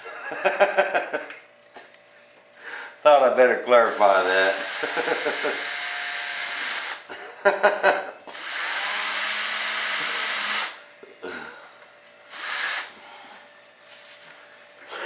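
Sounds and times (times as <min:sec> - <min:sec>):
power drill running: 0:03.8 - 0:07.1, 0:08.3 - 0:10.8, 0:12.3 - 0:13.2.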